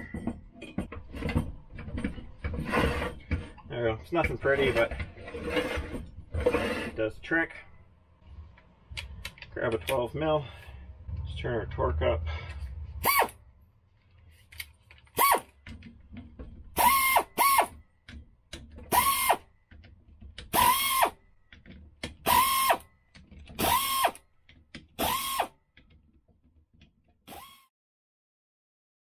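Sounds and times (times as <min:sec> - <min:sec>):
power driver whirring: 0:16.8 - 0:17.8, 0:18.9 - 0:19.4, 0:20.4 - 0:21.2, 0:22.2 - 0:22.8, 0:23.6 - 0:24.2, 0:25.0 - 0:25.5, 0:27.3 - 0:27.7.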